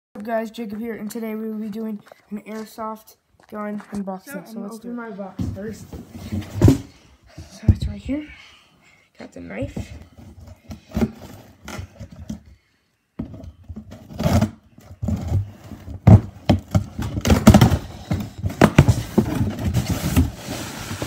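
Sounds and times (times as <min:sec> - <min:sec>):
knife cutting cardboard box: 0:13.8 - 0:21.0.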